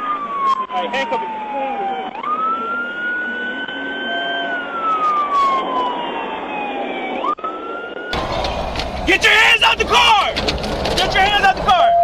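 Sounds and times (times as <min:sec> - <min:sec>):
police siren wailing: 0:00.0 - 0:12.0.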